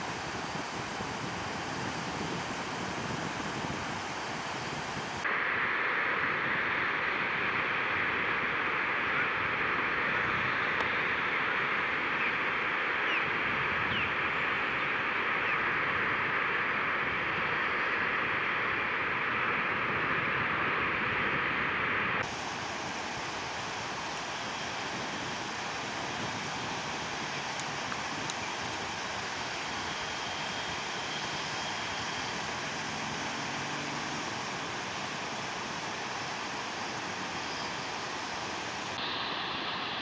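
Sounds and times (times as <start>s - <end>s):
water rushing through rapids: 21.8s - 40.0s.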